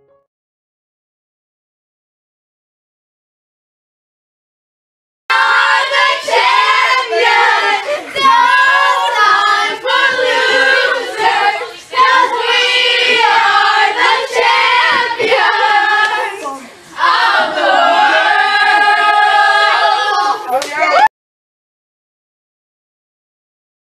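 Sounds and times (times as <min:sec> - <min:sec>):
children singing together: 0:05.3 - 0:20.6.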